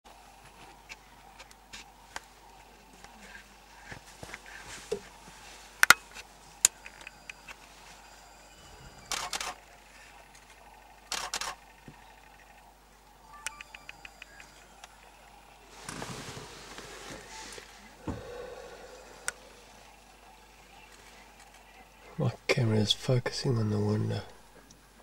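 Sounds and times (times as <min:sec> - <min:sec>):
camera shutter clicks: 0:09.0 - 0:09.6, 0:11.1 - 0:11.8.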